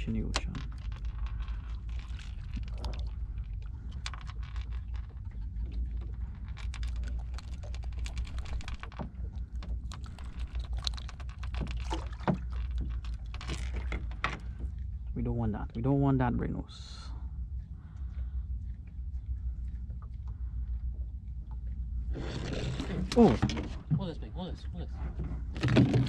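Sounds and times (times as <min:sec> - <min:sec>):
low rumble: 0:00.0 - 0:26.0.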